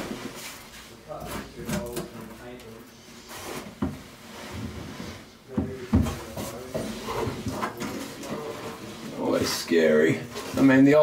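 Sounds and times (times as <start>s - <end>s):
wooden clunks and knocks: 5.5s - 6.9s.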